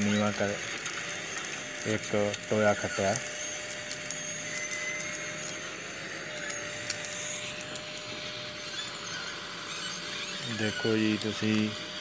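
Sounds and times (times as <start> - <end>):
steady whine: 0.0 - 12.0.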